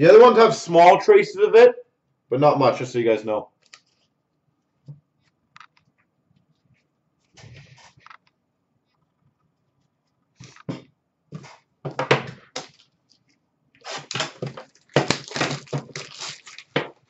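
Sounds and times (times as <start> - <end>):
plastic wrap crinkling and tearing: 12.6 - 17.0.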